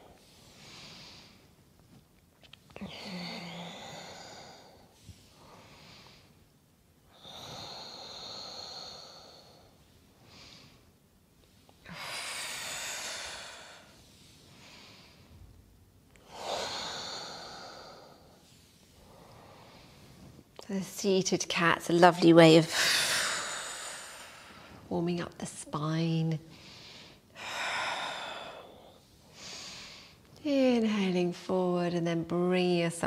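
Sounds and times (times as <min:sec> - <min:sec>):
woman breathing slowly: 0:00.0 - 0:02.0, 0:02.8 - 0:20.6, 0:22.7 - 0:24.9, 0:26.4 - 0:30.4.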